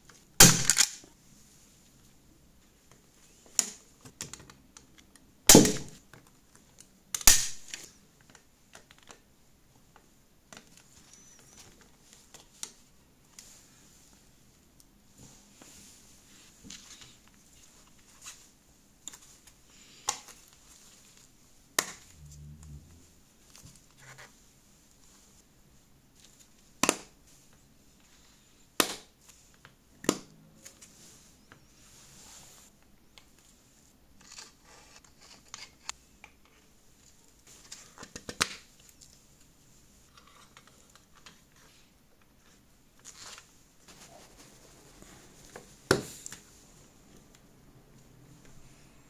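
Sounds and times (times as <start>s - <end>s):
plastic toy clicks and knocks: 0.4s - 1.0s.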